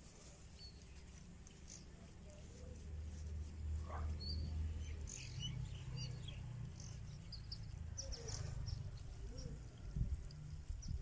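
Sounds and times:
faint bird chirps: 4.0 - 11.0.

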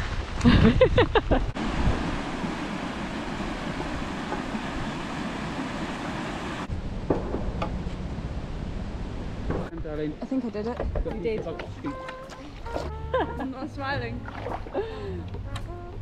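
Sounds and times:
water rushing through weir: 1.5 - 6.7.

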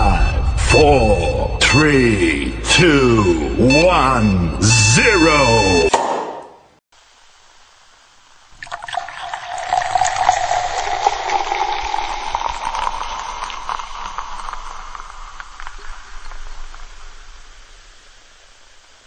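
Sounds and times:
carbonated liquid fizzing: 8.5 - 17.3.

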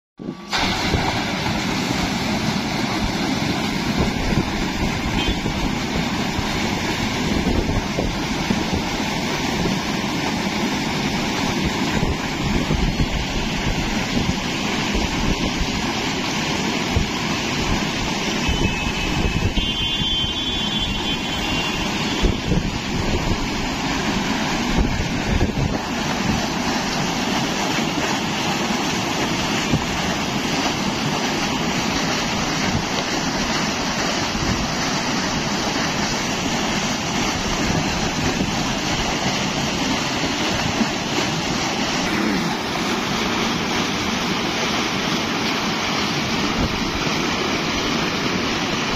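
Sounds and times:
diesel pump engine: 0.2 - 48.9
water gushing into a tank: 0.2 - 48.9.

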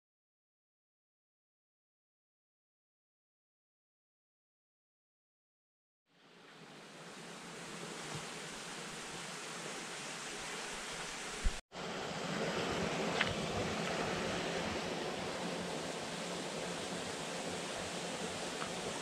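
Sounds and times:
stream running over stones: 6.3 - 11.6, 12.4 - 19.0.

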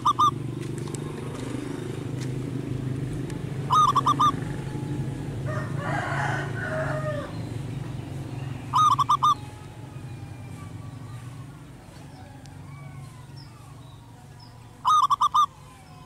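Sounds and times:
rough animal call: 0.0 - 0.4, 3.6 - 7.4, 8.6 - 11.4, 14.8 - 16.0
dove cooing: 0.0 - 13.9, 14.8 - 16.0.

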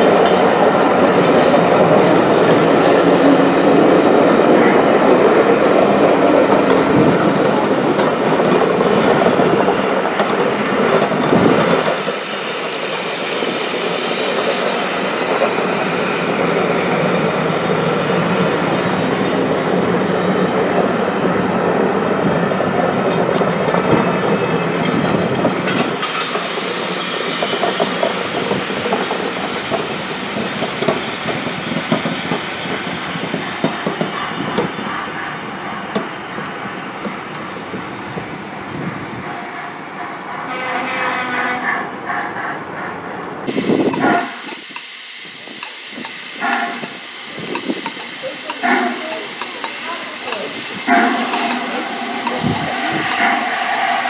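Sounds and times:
wheels clattering over rail joints: 0.0 - 15.6
wheel squeal: 34.3 - 36.5, 39.1 - 42.0, 42.8 - 43.5.

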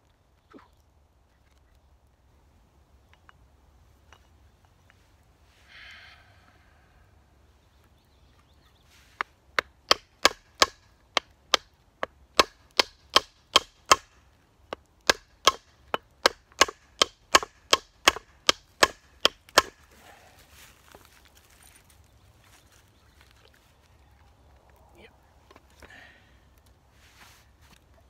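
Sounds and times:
baton knocking wooden handle: 9.6 - 19.8.

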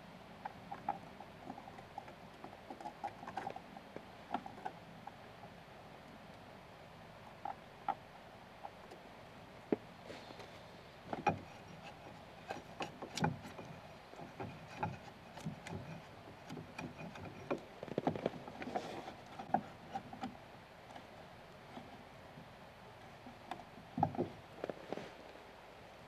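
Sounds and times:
chisel paring and scraping wood: 11.1 - 20.4.

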